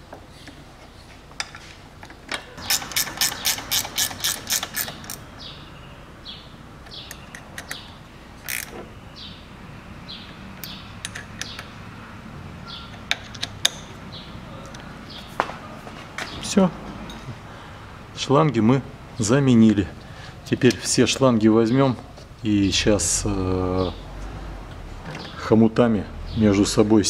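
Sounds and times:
ratchet wrench clicking: 2.6s - 5.3s, 8.4s - 8.8s, 10.6s - 11.7s
metallic clicks and taps: 10.6s - 11.7s, 12.9s - 13.9s.

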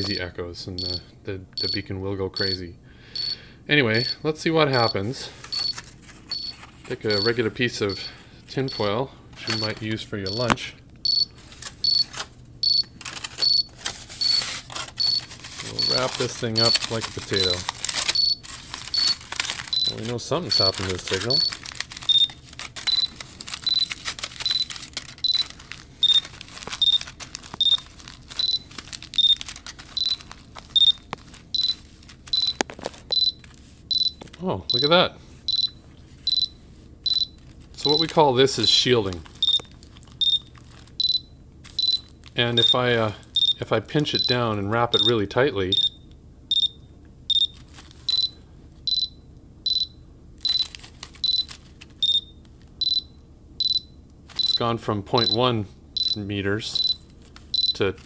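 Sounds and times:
transceiver beeping: 0.0s - 57.0s, 57.6s - 58.0s
aluminium foil crinkling: 5.2s - 8.2s, 9.4s - 10.0s, 11.2s - 34.8s, 37.1s - 41.0s, 41.6s - 43.4s, 47.4s - 48.2s, 50.4s - 52.7s, 54.3s - 54.6s, 56.6s - 58.0s.

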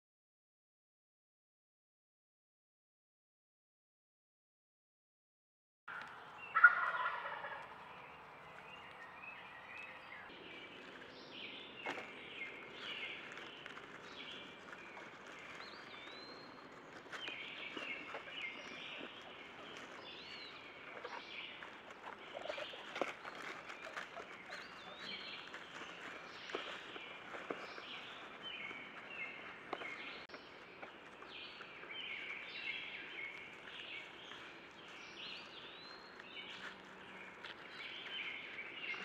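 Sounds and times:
turkey gobbling: 5.9s - 7.9s, 20.9s - 25.2s.

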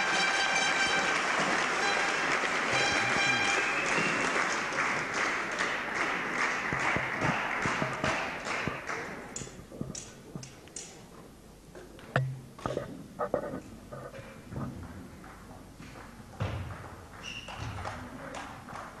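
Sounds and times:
spectators applauding: 0.0s - 9.6s.

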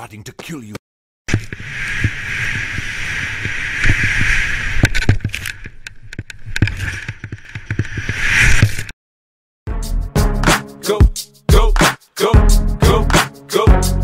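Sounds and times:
skis running through powder snow: 1.3s - 4.8s.

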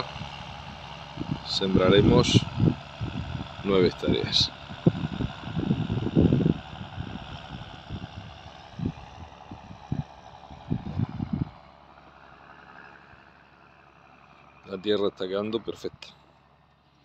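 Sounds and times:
wind buffeting microphone: 0.0s - 11.7s
steady outdoor hiss: 0.0s - 17.0s.

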